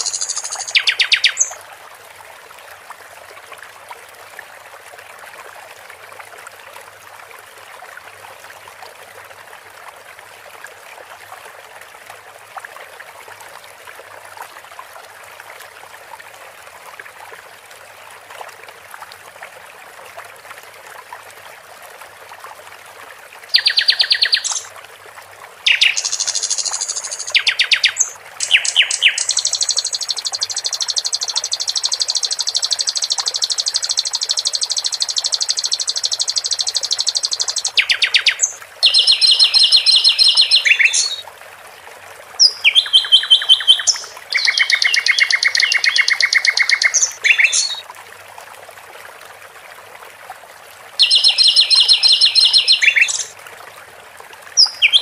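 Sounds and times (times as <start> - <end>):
bird singing trills: 0.0 - 1.5, 23.6 - 24.7, 25.7 - 41.2, 42.4 - 47.8, 51.0 - 53.3, 54.6 - 55.0
water trickling: 0.0 - 55.0.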